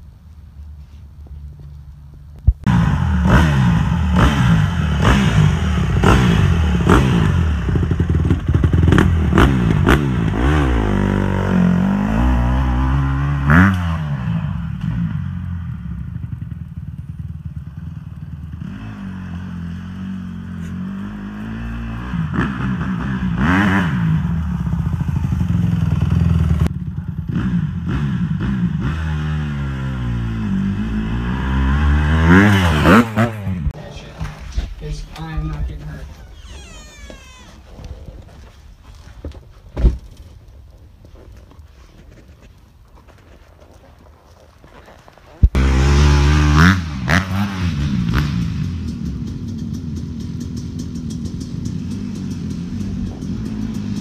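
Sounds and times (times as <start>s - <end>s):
dirt bike engine revving: 2.7s - 16.5s, 17.7s - 26.7s, 27.3s - 33.7s, 45.5s - 54.0s.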